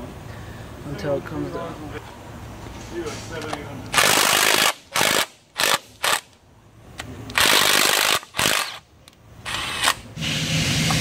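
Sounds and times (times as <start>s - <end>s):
cordless drill spinning in bursts: 7.4s - 8.8s.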